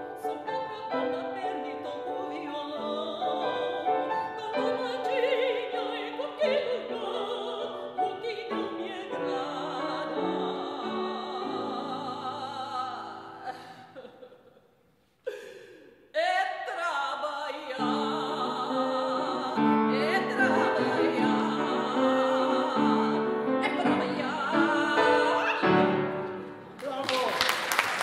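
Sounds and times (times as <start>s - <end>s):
woman singing classical style: 0.0s - 14.4s, 16.1s - 27.3s
piano accompaniment: 17.8s - 26.8s.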